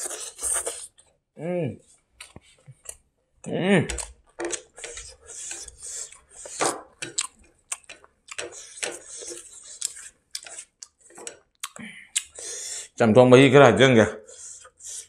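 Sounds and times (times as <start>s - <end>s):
chewing and mouth smacks: 4.0s - 12.4s.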